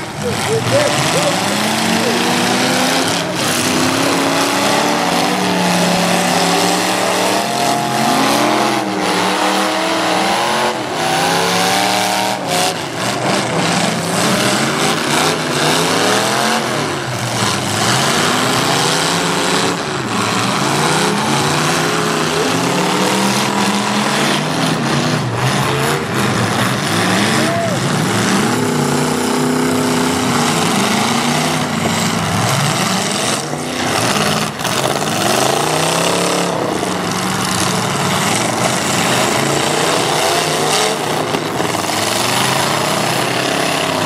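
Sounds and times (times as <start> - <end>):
car engines revving: 0.0 - 44.0
engine and tyre noise: 0.0 - 44.0.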